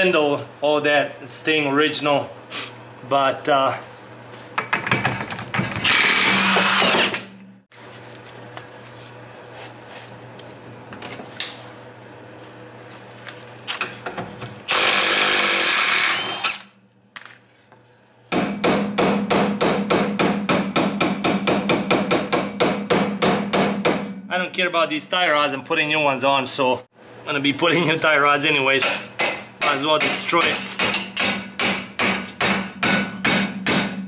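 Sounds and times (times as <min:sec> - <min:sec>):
impact wrench buzzing: 0:05.6 - 0:07.6, 0:14.6 - 0:16.8.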